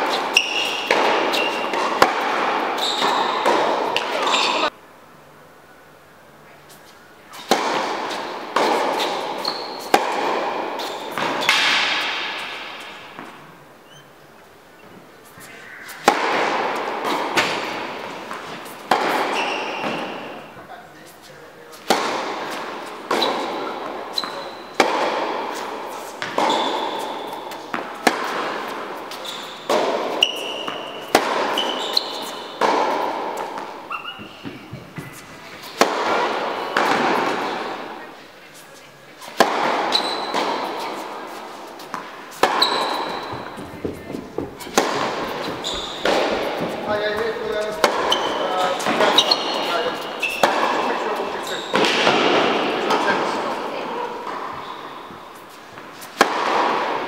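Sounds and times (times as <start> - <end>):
high shoe squeak: 0.0 - 2.1, 2.7 - 4.7, 6.7 - 10.1, 10.8 - 16.2, 18.2 - 24.8, 25.5 - 35.8, 36.5 - 56.2
tennis ball hits echoing: 0.0 - 4.7, 7.4 - 13.6, 15.8 - 20.6, 21.7 - 38.1, 39.3 - 57.0.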